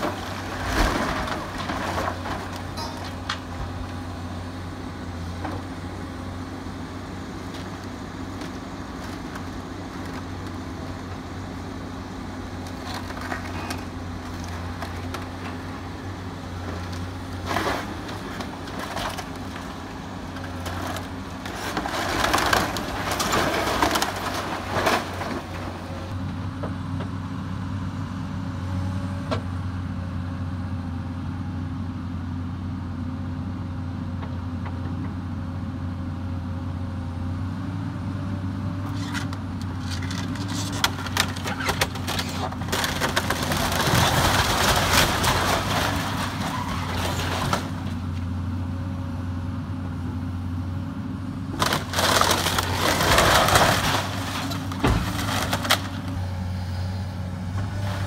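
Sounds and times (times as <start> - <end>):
wood cracking and crunching: 0.0 - 4.1, 12.5 - 26.2, 38.9 - 48.3, 51.5 - 56.2.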